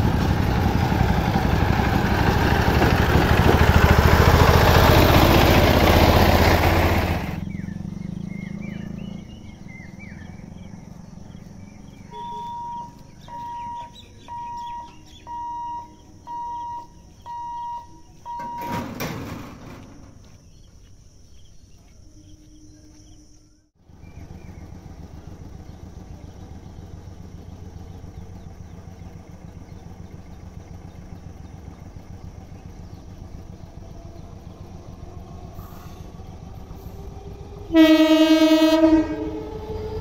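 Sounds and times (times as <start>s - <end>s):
vehicle engines idling: 0.0s - 40.0s
level crossing hooter beeping: 12.0s - 19.0s.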